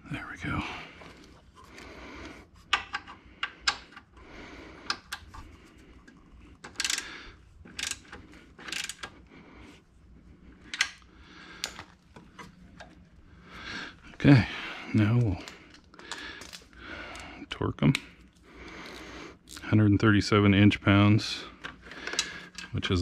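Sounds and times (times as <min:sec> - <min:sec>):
ratchet wrench clicking: 0:06.7 - 0:07.1, 0:07.7 - 0:09.1.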